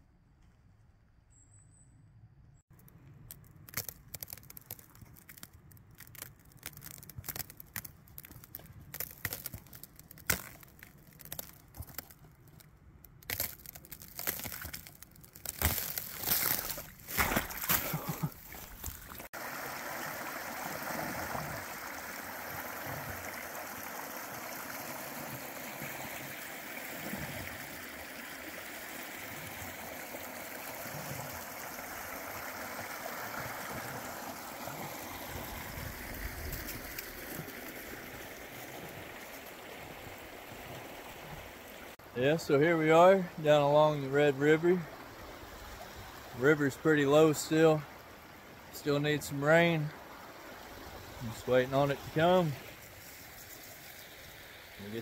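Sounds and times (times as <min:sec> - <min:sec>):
splashing footsteps in water: 0:02.7 - 0:19.4
boots crunching through dry leaves: 0:13.3 - 0:19.3
river running over rocks: 0:13.3 - 0:42.0.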